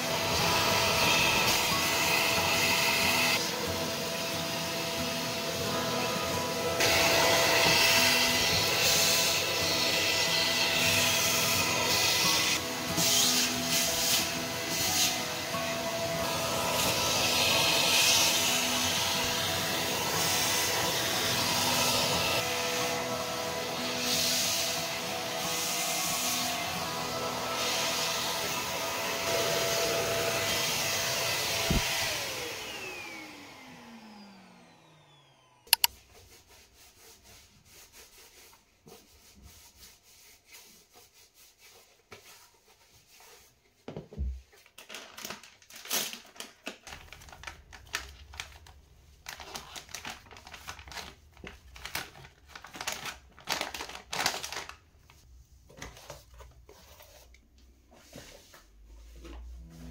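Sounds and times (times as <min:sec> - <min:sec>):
handheld vacuum cleaner running: 0:00.0 - 0:35.9
wet wipes rubbing and crinkling: 0:35.8 - 0:43.8, 0:44.4 - 0:59.9.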